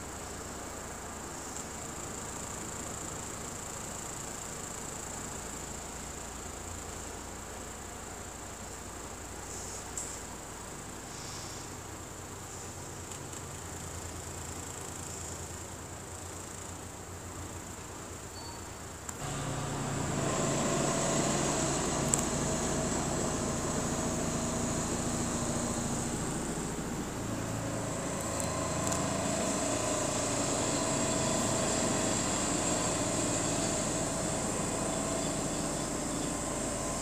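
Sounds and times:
mechanical hum with held tones: 0:17.5 - 0:37.0.

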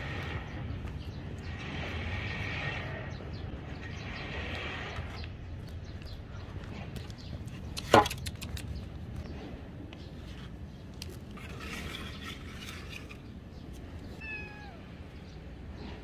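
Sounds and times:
kitten meowing: 0:14.2 - 0:14.9.

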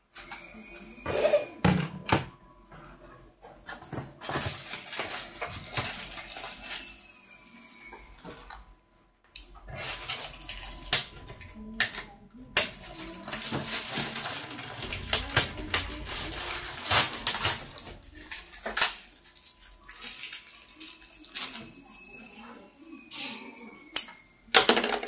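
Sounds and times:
plastic bags crinkling: 0:04.2 - 0:07.0, 0:12.6 - 0:21.7.

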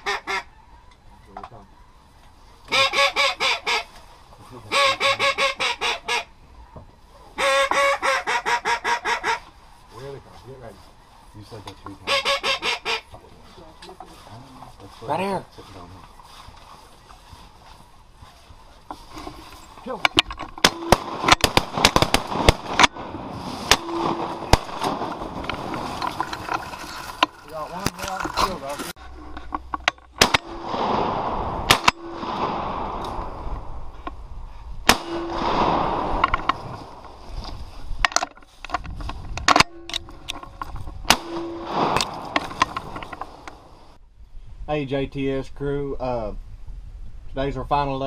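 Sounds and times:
duck call quacks: 0:00.0 - 0:00.5, 0:02.7 - 0:03.9, 0:04.7 - 0:06.3, 0:07.4 - 0:09.5, 0:12.0 - 0:13.1
low steady tone: 0:23.7 - 0:25.2, 0:29.0 - 0:30.9, 0:31.5 - 0:37.2.

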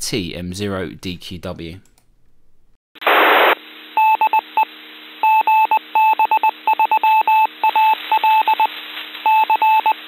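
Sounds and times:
radio hiss: 0:03.0 - 0:03.8.

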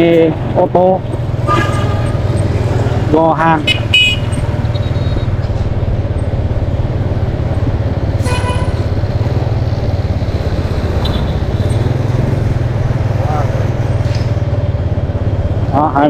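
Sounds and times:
motorbike engine hum: 0:00.0 - 0:16.0
road and wind noise: 0:00.0 - 0:16.0
short beep: 0:04.1 - 0:05.4.

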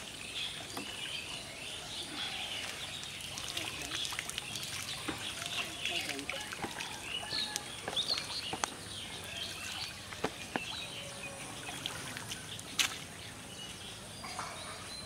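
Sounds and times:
birds chirping: 0:00.0 - 0:15.0
water dripping off fishing net: 0:02.6 - 0:08.8.

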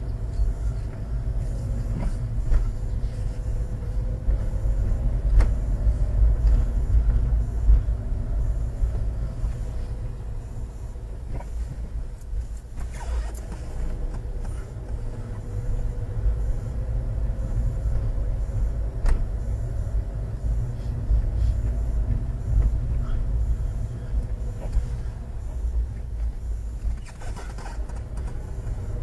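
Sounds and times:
motorhome engine and road rumble: 0:00.0 - 0:29.0.

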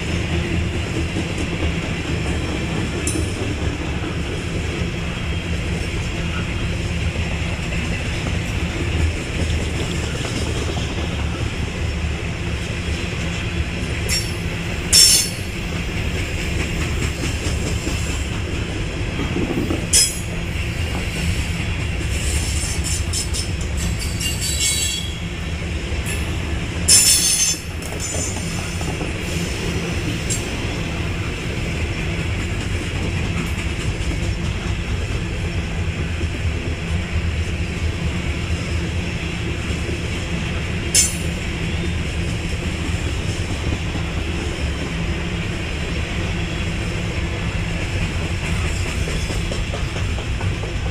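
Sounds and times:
train wheels rumbling on rail: 0:00.0 - 0:50.9
high wheel squeals: 0:23.8 - 0:25.2.

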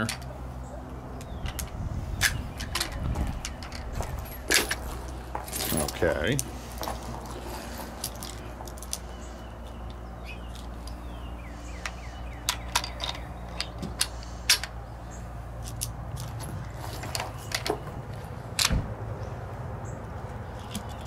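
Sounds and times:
low background hum: 0:00.0 - 0:21.0
metallic clicks of cartridges loading: 0:11.8 - 0:14.8.

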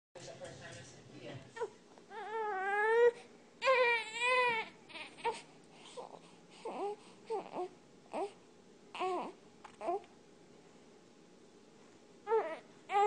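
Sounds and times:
infant crying: 0:01.6 - 0:10.1, 0:12.3 - 0:13.0.

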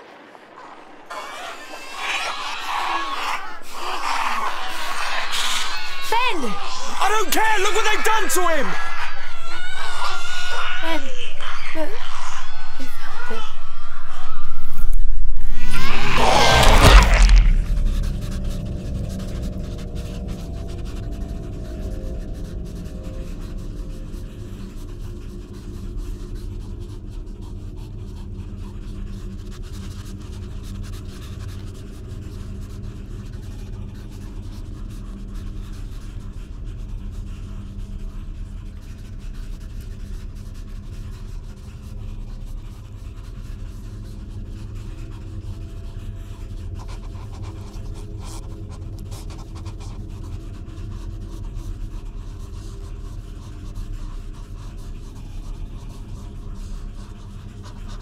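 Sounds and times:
low droning tones: 0:10.8 - 0:29.4.

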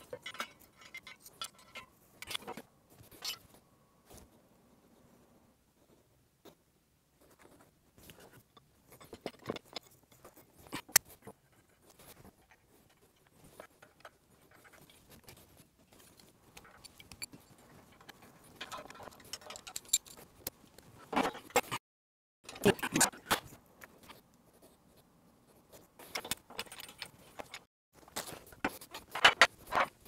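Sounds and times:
small clicks and clinks of parts: 0:00.0 - 0:03.5, 0:12.0 - 0:21.8, 0:26.0 - 0:30.0.

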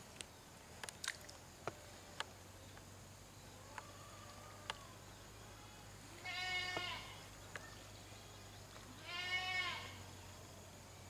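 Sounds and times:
animal bleating: 0:05.6 - 0:07.2, 0:09.0 - 0:10.0.

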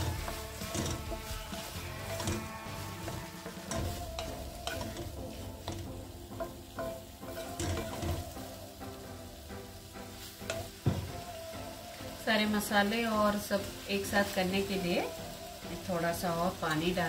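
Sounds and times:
spatula scraping metal pan: 0:00.0 - 0:08.4
light sizzle: 0:00.0 - 0:17.0.

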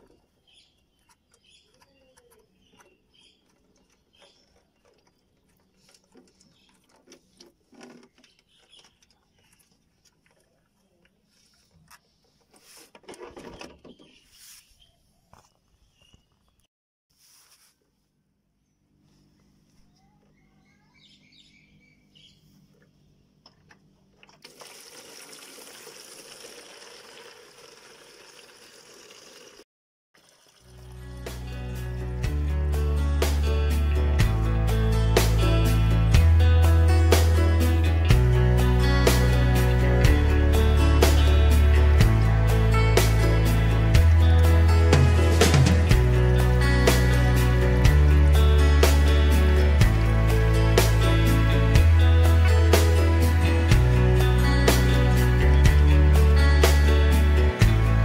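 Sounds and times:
bird chirps: 0:00.0 - 0:05.5, 0:19.9 - 0:22.6
faint clicks and scraping: 0:00.0 - 0:14.2
faint bird chirps: 0:19.8 - 0:23.2.

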